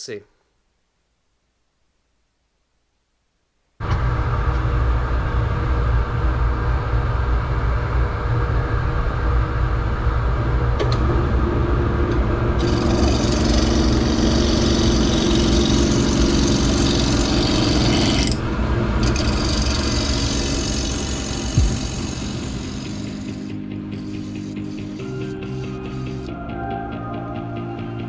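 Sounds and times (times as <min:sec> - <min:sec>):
gouge shearing spinning wood: 0:12.6 - 0:18.4, 0:19.0 - 0:26.2
wood lathe spinning: 0:12.6 - 0:18.4, 0:19.0 - 0:26.3.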